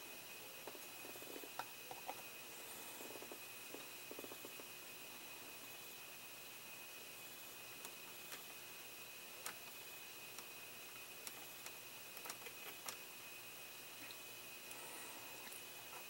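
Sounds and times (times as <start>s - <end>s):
faint high whine: 0.0s - 16.0s.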